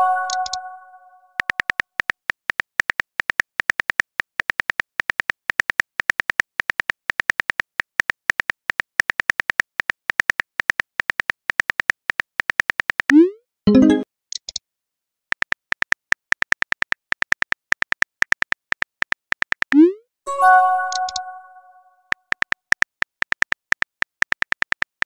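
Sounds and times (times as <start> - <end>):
phone keyboard clicks: 20.9 - 21.3, 22.3 - 25.0.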